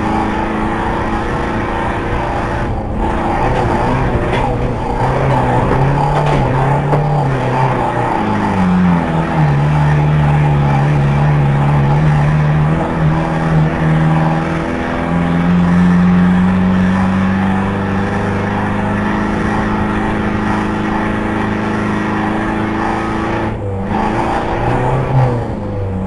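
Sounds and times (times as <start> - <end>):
van engine running at high revs: 0.0 - 26.0.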